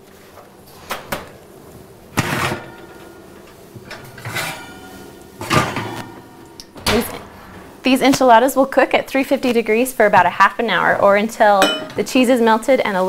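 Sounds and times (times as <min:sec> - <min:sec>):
glass dishes clinking: 0:11.6 - 0:12.0.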